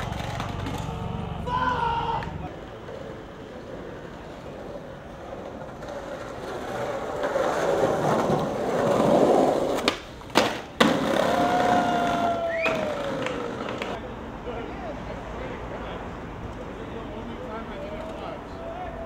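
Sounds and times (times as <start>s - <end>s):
skateboard wooden clacks: 0.0s - 1.0s, 5.4s - 11.4s, 12.6s - 14.0s
skateboard wheels rolling: 0.0s - 1.2s, 1.8s - 14.1s.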